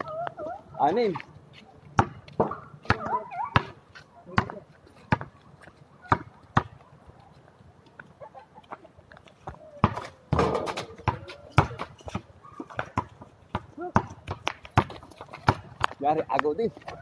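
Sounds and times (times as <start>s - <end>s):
basketball bouncing on concrete: 2.0s - 5.3s, 6.0s - 6.8s, 9.5s - 17.0s.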